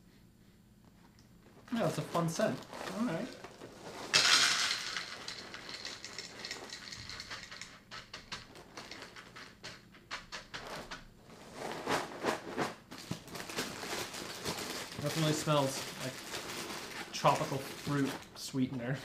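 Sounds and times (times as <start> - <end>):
box and bag rustling: 1.4 - 7.3, 10.6 - 18.5
cereal pouring into a bowl: 1.7 - 9.8, 14.5 - 18.1.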